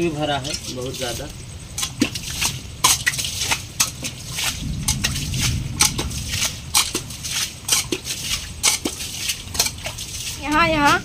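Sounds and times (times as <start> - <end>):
sharp water splashes: 0.0 - 11.0
water sloshing: 0.0 - 11.0.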